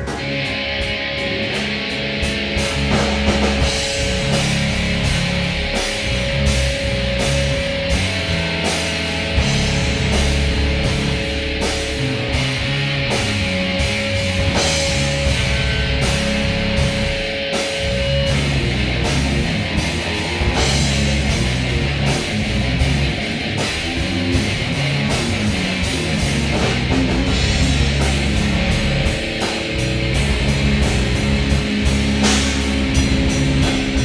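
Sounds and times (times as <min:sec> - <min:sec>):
bass guitar: 0:00.0 - 0:34.0
drum kit beat: 0:00.0 - 0:34.0
electric guitar: 0:00.0 - 0:34.0.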